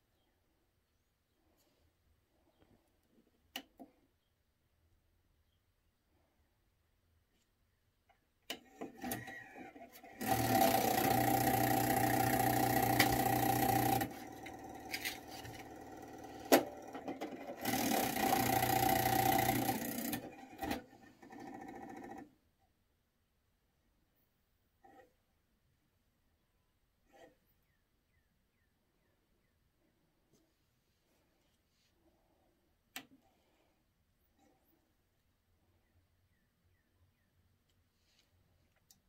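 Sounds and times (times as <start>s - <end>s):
loading motor running: 8.7s - 22.3s
disc mechanism clicks: 10.5s - 15.8s, 16.4s - 20.8s.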